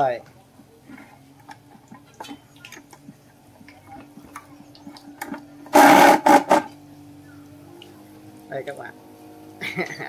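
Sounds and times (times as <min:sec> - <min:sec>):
metal scraping: 0:05.7 - 0:06.8.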